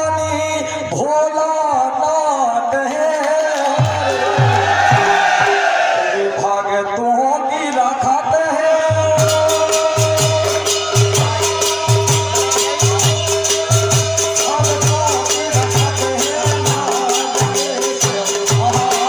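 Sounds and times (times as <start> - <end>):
drum beating steady rhythm: 2.8 - 6.0, 8.0 - 19.0.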